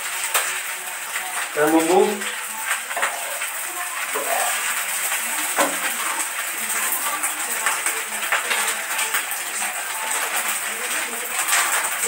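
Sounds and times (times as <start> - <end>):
rice sizzling in a pan: 0.0 - 12.0.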